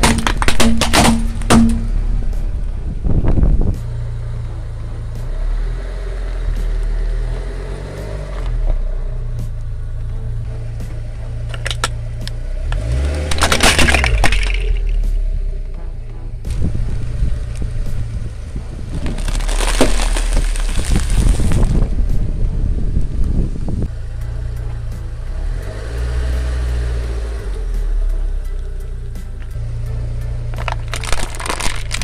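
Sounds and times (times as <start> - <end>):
plastic cracking under tyre: 0.0 - 1.9, 12.7 - 15.0, 18.9 - 21.9, 30.5 - 32.0
car engine hum: 0.0 - 32.0.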